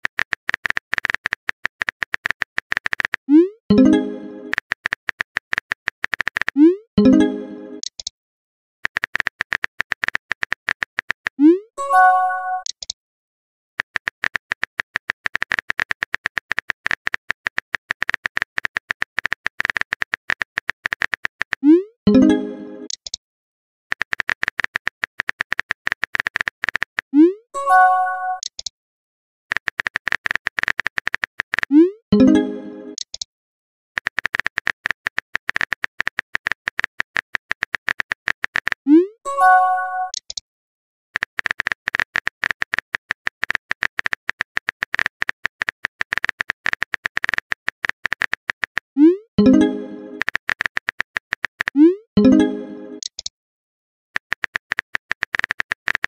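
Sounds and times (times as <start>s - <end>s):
keyboard tapping: 0.0s - 6.6s, 8.8s - 11.4s, 13.8s - 21.6s, 23.9s - 27.0s, 29.5s - 31.7s, 34.0s - 38.8s, 41.2s - 48.8s, 49.4s - 51.8s, 54.2s - 56.0s
message chime: 3.7s - 4.5s, 7.0s - 7.8s, 11.8s - 12.7s, 22.1s - 22.9s, 32.2s - 33.0s, 39.3s - 40.2s, 49.4s - 50.2s, 52.2s - 53.0s.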